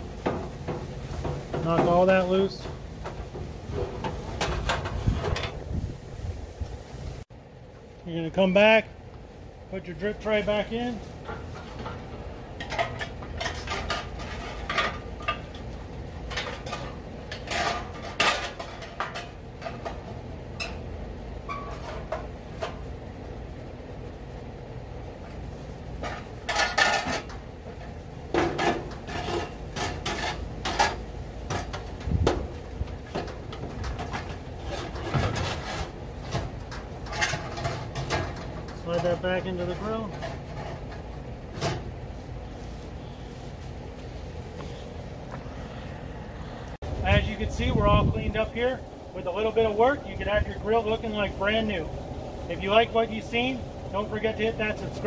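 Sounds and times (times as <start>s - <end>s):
metal drip tray clanking and scraping: 0.2s - 5.6s, 11.2s - 22.9s, 26.0s - 42.0s.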